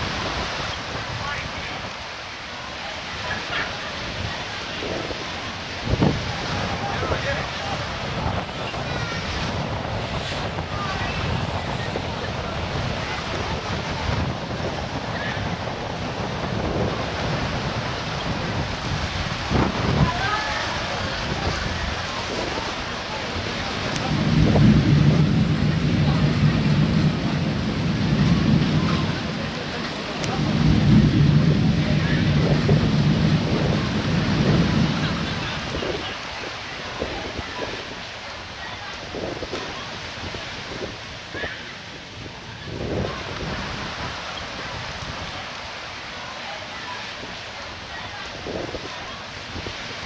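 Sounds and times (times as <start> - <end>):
floodwater rushing along a kerb: 0.0 - 50.0
heavy rain: 0.0 - 50.0
wind buffeting microphone: 3.2 - 45.8, 47.1 - 50.0
rolling thunder: 5.0 - 22.7, 23.4 - 36.2.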